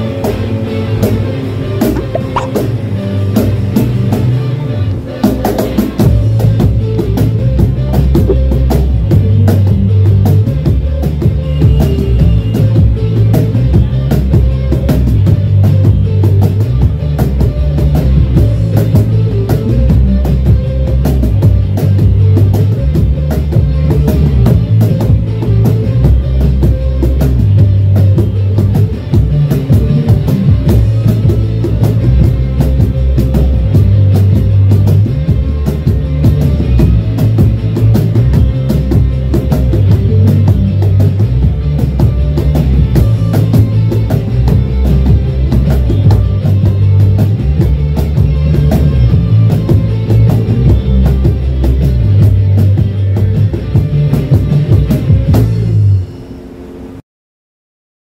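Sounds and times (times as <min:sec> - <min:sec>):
rock music: 0:00.0 - 0:56.0.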